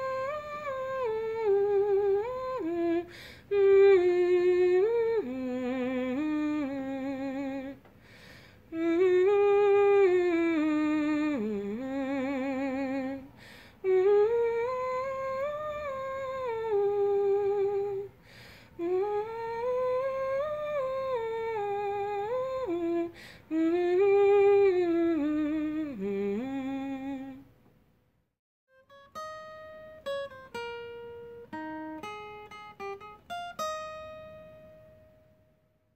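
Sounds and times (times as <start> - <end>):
person humming a melody: 0.0 - 7.8, 8.7 - 27.4.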